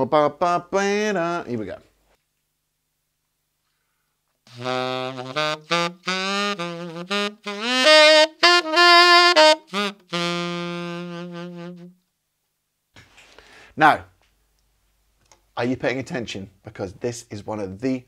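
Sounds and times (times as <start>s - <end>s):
tenor saxophone blues lick: 4.5s - 12.1s.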